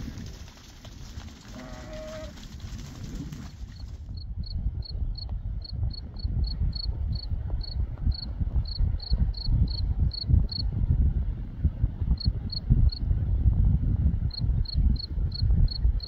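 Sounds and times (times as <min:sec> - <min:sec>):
cricket chirping: 0:04.2 - 0:10.6, 0:14.3 - 0:15.9.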